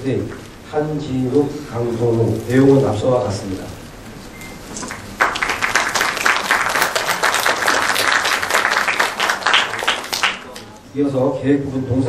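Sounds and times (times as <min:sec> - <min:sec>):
audience applauding: 0:04.7 - 0:10.7.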